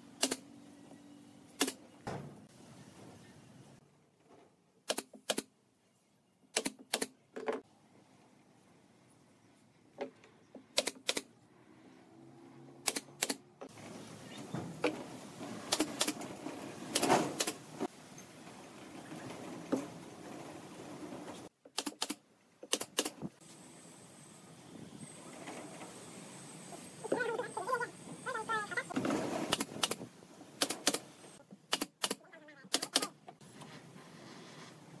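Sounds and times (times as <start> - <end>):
sharp clicks in pairs: 0.2 - 0.5, 4.9 - 5.5, 6.5 - 7.1, 10.7 - 11.3, 12.8 - 13.4, 21.7 - 23.2, 29.5 - 30.0, 30.6 - 31.0, 31.7 - 33.1.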